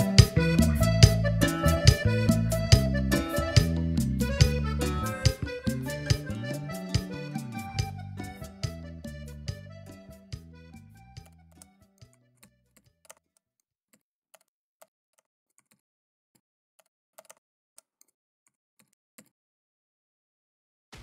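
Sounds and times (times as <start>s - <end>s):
band music: 0.0s - 10.9s
keyboard typing clicks: 11.1s - 13.2s.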